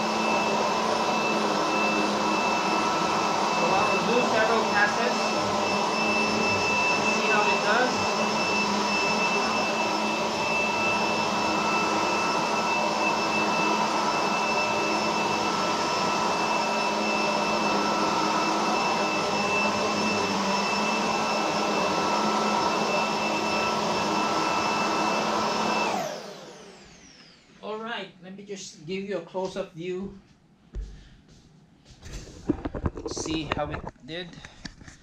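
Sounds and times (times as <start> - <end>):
vacuum motor whine: 0.0 - 27.6.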